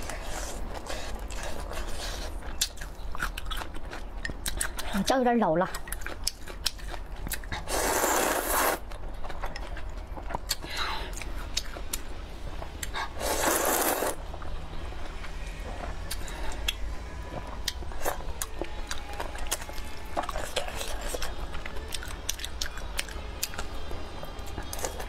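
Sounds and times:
close-up wet chewing: 0:00.0 - 0:12.1, 0:12.8 - 0:25.0
slurping noodles: 0:07.6 - 0:08.8, 0:13.0 - 0:14.2.

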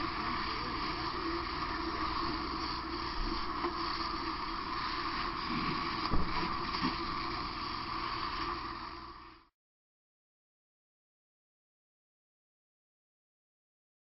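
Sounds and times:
fire hose spraying water: 0:00.0 - 0:09.5.

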